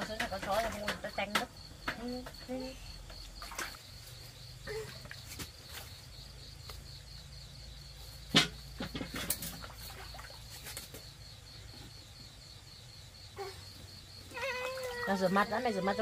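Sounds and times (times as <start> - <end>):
crickets chirping: 0.0 - 16.0
splashes in metal basin: 3.4 - 4.0, 8.8 - 11.0.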